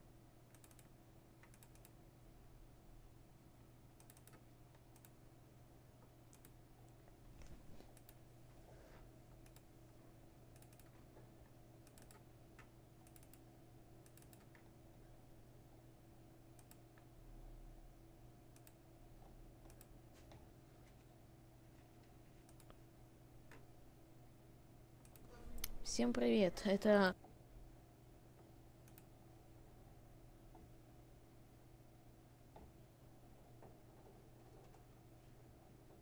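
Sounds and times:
low electrical hum: 0:00.0 - 0:36.0
computer mouse clicks: 0:00.5 - 0:02.0, 0:04.0 - 0:05.2, 0:06.3 - 0:08.2, 0:09.4 - 0:09.7, 0:10.5 - 0:11.0, 0:11.8 - 0:14.7, 0:16.6 - 0:17.1, 0:18.5 - 0:20.4, 0:22.4 - 0:22.8, 0:25.0 - 0:26.2, 0:28.8 - 0:29.1.

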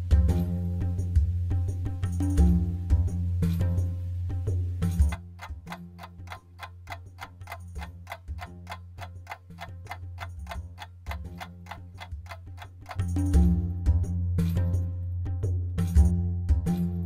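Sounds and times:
low background music: 0:00.0 - 0:17.0
timer ticking rapidly: 0:04.9 - 0:13.7.

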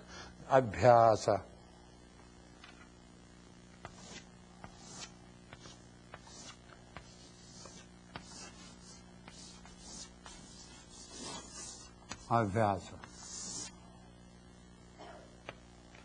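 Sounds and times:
chalk ticks: 0:03.8 - 0:12.3
chalk scraping on chalkboard: 0:03.8 - 0:13.8.

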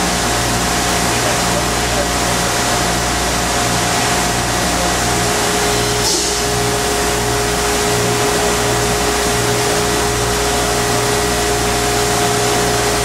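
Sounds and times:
constant whine: 0:00.0 - 0:13.0
pulsing low hum: 0:00.0 - 0:13.0
machinery hiss: 0:04.6 - 0:11.4.

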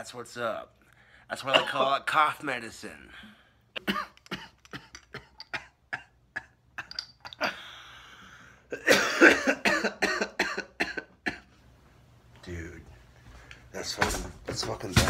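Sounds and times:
man coughing hard: 0:01.5 - 0:02.0, 0:03.8 - 0:07.0, 0:08.7 - 0:11.5.

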